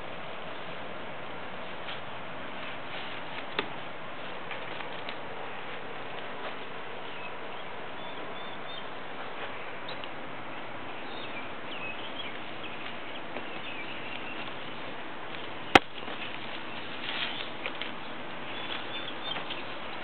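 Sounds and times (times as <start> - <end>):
steady background hiss: 0.0 - 20.0
faint high bird chirps: 7.0 - 8.9, 18.5 - 19.8.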